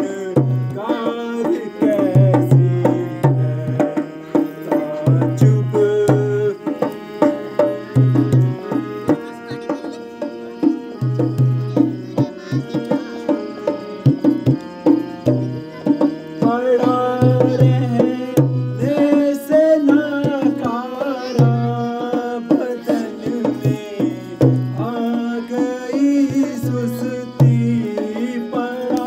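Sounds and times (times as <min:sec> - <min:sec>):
person singing: 0:00.0 - 0:06.9, 0:15.2 - 0:29.0
tabla drumming: 0:00.0 - 0:29.0.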